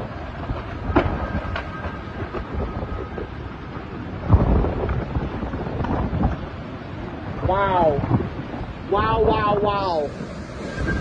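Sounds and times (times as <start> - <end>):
hurricane wind and driving rain: 0.0 - 11.0
faint high whistle: 10.1 - 11.0.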